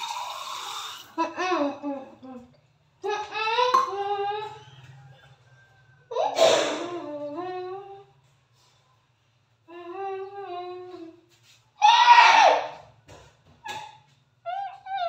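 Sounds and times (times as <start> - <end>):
child making silly vocal sounds: 1.1 - 4.7, 6.1 - 8.1, 9.7 - 11.2
child humming wavering note: 6.8 - 8.1, 9.7 - 11.2.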